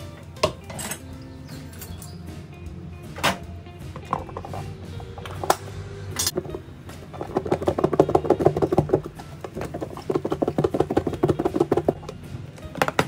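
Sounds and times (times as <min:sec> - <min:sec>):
food rattling in plastic container: 0:07.2 - 0:12.2.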